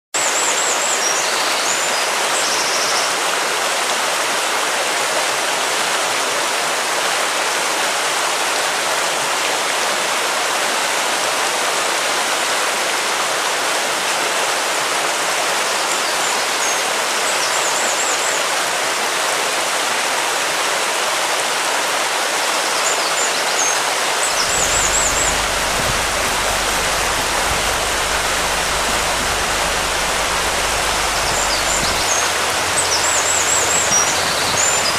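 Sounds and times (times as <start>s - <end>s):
deep rumble: 24.3s - 34.9s
high chirps: 24.3s - 34.9s
steady rushing noise: 24.3s - 34.9s.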